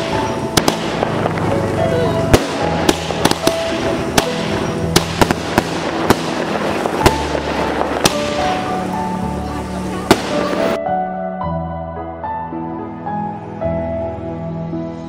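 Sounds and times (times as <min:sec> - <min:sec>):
firework bangs: 0:00.0 - 0:10.8
firework crackle: 0:00.0 - 0:10.8
music playing: 0:00.0 - 0:15.0.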